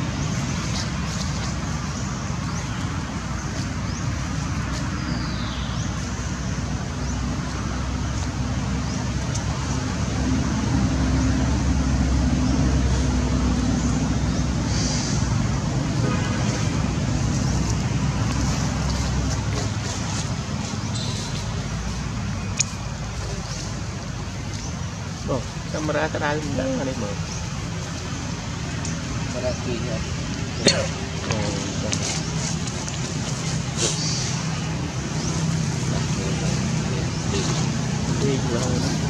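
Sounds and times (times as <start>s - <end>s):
rushing background noise: 0.0s - 39.0s.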